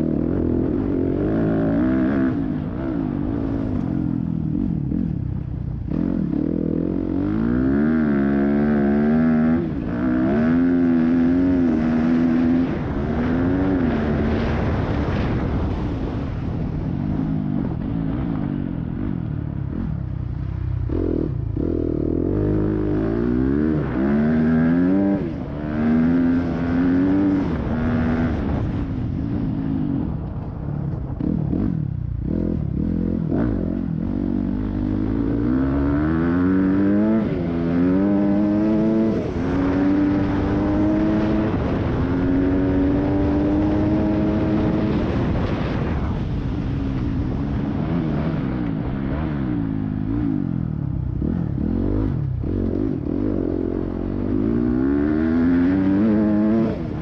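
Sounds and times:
dirt bike engine revving: 0:00.0 - 0:15.8, 0:20.8 - 0:28.8, 0:31.2 - 0:57.0.

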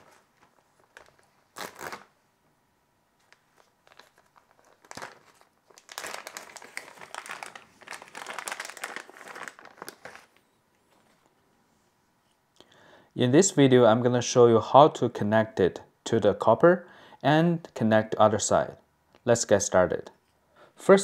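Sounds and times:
plastic bag crinkling: 0:00.0 - 0:02.1, 0:03.2 - 0:11.3.

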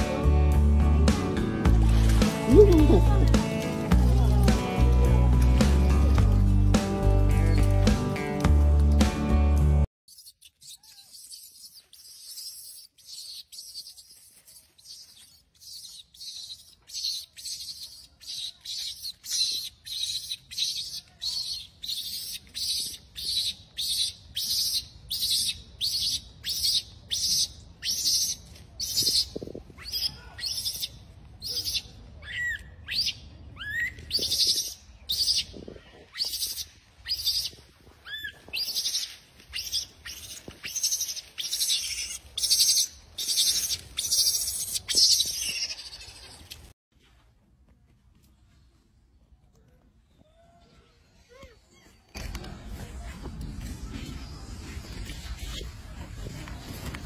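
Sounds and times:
high-pitched animal calls: 0:10.1 - 0:46.5.

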